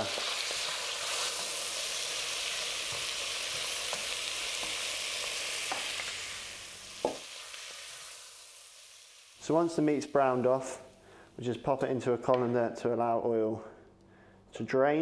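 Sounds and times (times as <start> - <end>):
meat sizzling in hot oil: 0.0 - 10.5.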